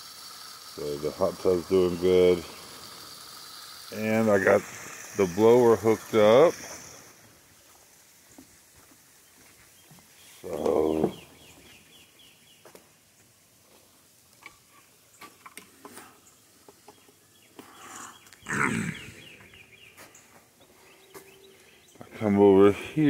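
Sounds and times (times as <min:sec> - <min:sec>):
animal calling: 0:17.6 - 0:19.8.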